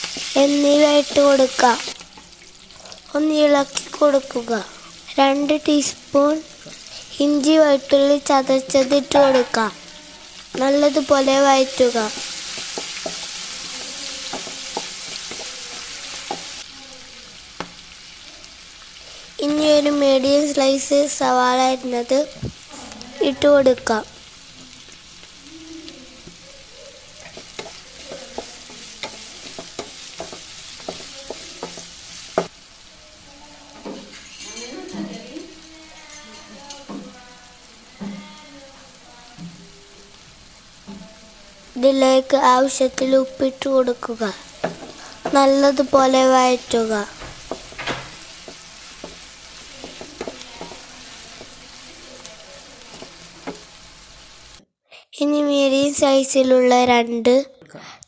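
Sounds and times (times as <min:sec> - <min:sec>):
onions sizzling in oil: 0:00.0 - 0:54.6
spatula tapping against pan: 0:12.1 - 0:16.5, 0:27.2 - 0:32.5, 0:44.6 - 0:45.4, 0:47.2 - 0:49.2, 0:49.8 - 0:51.6.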